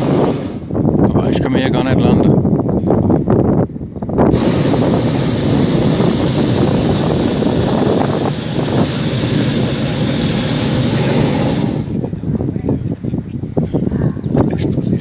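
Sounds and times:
propane burner roaring hiss: 0:00.0 - 0:01.1, 0:04.2 - 0:12.4.

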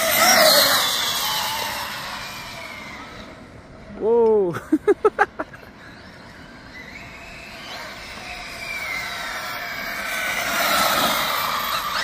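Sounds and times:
electric motor whine: 0:00.0 - 0:03.6, 0:06.3 - 0:12.0.

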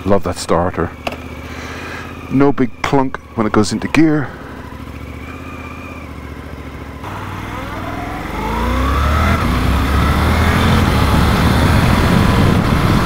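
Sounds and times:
motorcycle engine accelerating: 0:00.8 - 0:13.0
wind noise: 0:09.4 - 0:13.0.

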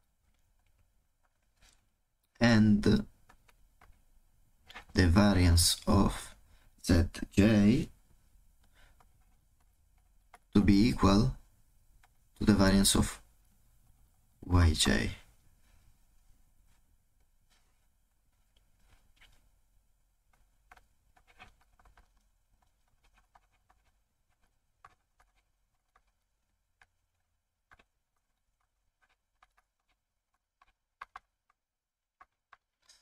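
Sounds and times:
stylus tapping tablet screen: 0:08.6 - 0:11.2, 0:20.3 - 0:33.0.

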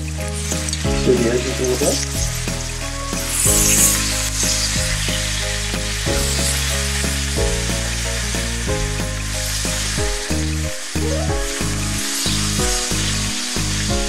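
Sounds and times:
background music: 0:00.0 - 0:14.0
steaks sizzling in a skillet: 0:00.0 - 0:14.0.

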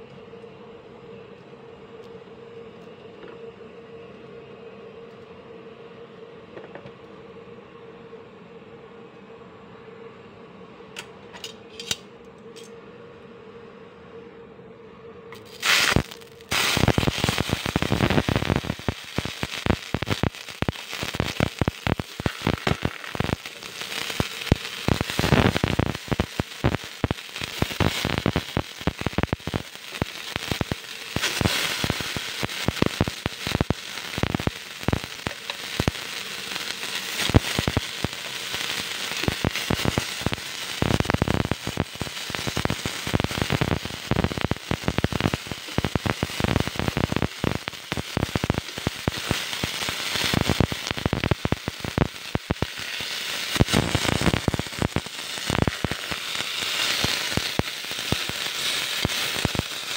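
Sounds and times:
fruit sizzling in a frying pan: 0:15.4 - 0:59.9.

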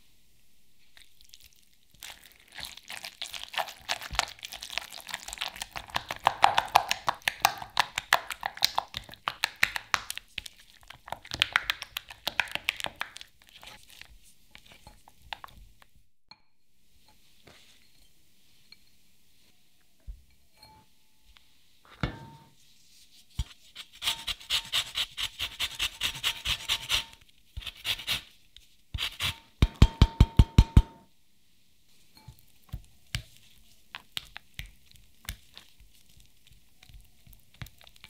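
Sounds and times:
zester rasping lemon rind: 0:23.8 - 0:28.3, 0:28.9 - 0:29.4.

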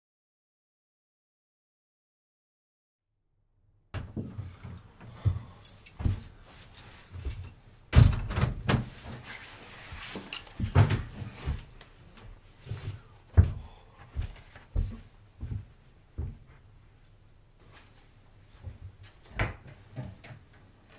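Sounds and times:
footsteps along a hallway: 0:04.0 - 0:07.6, 0:08.8 - 0:20.9.

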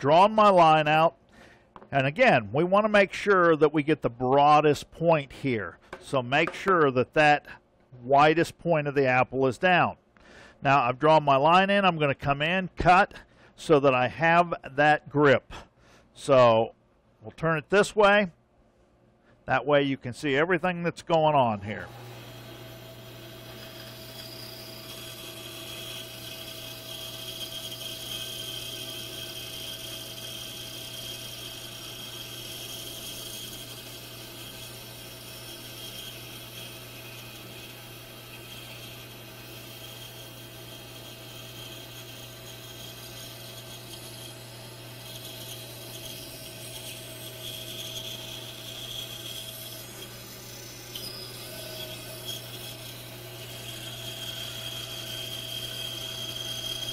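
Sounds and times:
bandsaw motor hum: 0:21.8 - 0:56.9
saw blade rasping through wood: 0:21.9 - 0:56.9.

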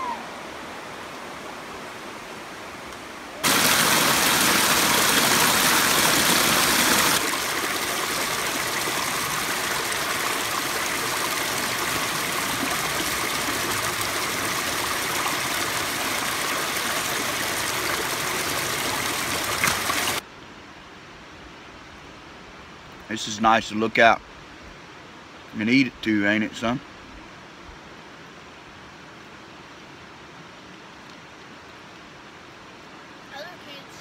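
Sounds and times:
creek running over rocks: 0:00.0 - 0:20.3, 0:28.4 - 0:34.0.

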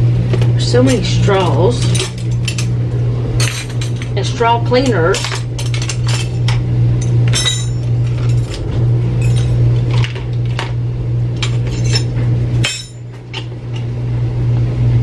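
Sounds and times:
steady low hum: 0:00.0 - 0:15.0
kitchen utensils clinking: 0:00.3 - 0:02.8, 0:03.4 - 0:10.7, 0:11.4 - 0:13.9.

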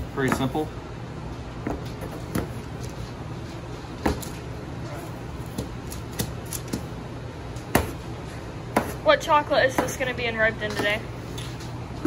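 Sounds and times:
steady low hum: 0:00.0 - 0:12.0
knife chopping on cutting board: 0:07.7 - 0:08.0, 0:08.7 - 0:09.0.

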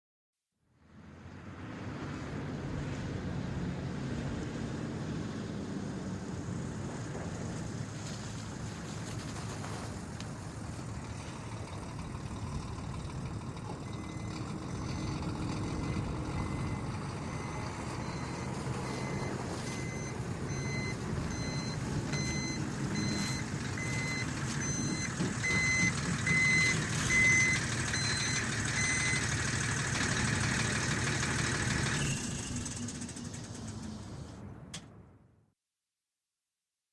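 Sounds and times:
diesel truck engine: 0:00.9 - 0:34.9
backup alarm beeping: 0:11.1 - 0:29.2.

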